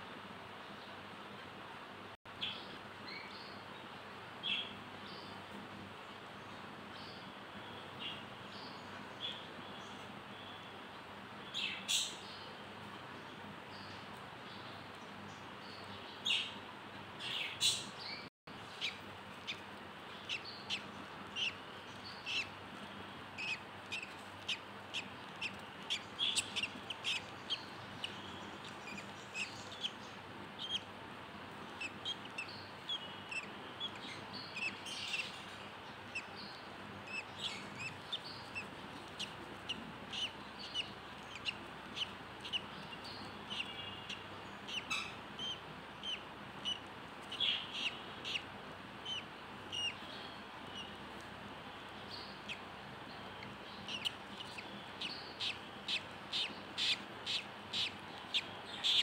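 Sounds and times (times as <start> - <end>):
faint steady hiss: 0.0 - 59.0
budgerigar chirping: 20.2 - 22.6, 23.4 - 30.9, 31.7 - 51.0, 53.3 - 59.0.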